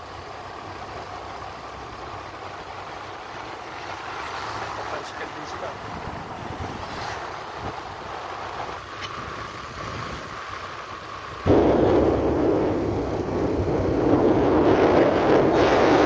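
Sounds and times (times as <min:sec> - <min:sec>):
wind buffeting microphone: 0:04.6 - 0:16.0.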